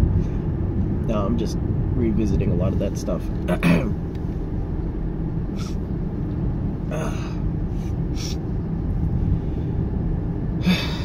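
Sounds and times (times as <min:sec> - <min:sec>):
car road and engine noise: 0:00.0 - 0:11.0.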